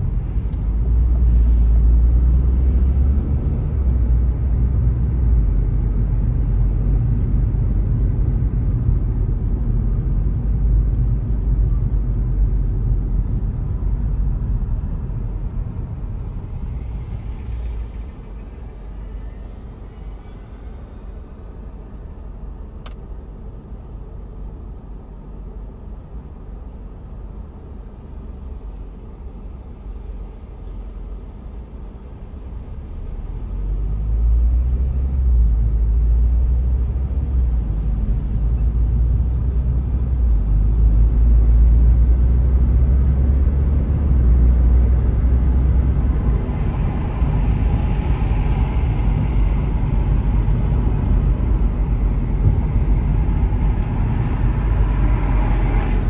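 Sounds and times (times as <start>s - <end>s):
engine and tyre rumble: 0.0s - 56.0s
car cabin hum: 45.4s - 56.0s.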